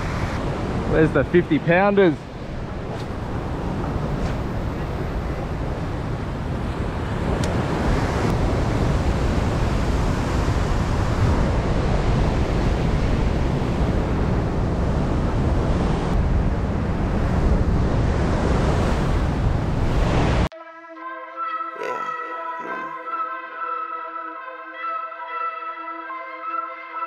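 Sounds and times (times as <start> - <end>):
wind buffeting microphone: 0.0 - 20.5.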